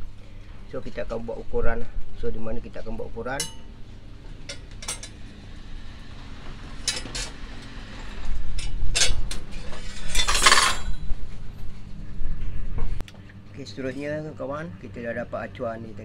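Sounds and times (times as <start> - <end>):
metal rods clinking: 4.4 - 5.2, 6.8 - 7.4, 8.6 - 11.0
metal scrape: 6.7 - 11.1.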